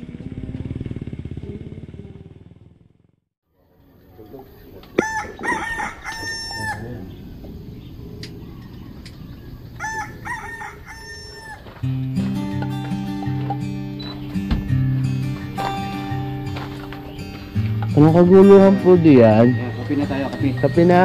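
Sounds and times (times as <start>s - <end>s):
rooster crowing: 4.9s - 7.2s, 9.6s - 11.8s
music: 11.8s - 21.0s.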